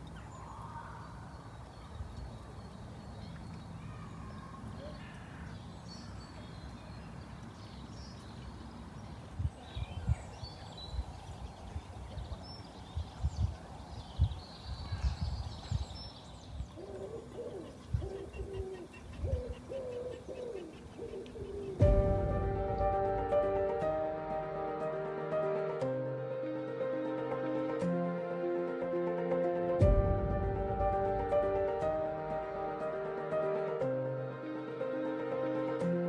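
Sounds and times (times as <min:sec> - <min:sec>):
wind noise on microphone: 0:09.2 - 0:16.8, 0:17.8 - 0:19.7
pigeon cooing: 0:16.8 - 0:21.8.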